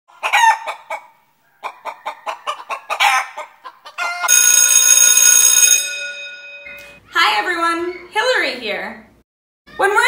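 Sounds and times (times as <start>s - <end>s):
chicken clucking: 0.1s - 4.3s
bell-like ringing tone: 4.3s - 7.0s.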